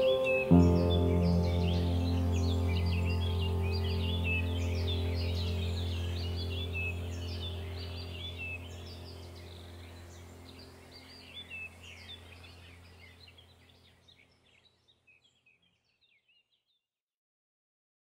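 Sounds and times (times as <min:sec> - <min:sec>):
birds chirping: 0:00.0 - 0:16.4
steady low hum: 0:00.6 - 0:13.3.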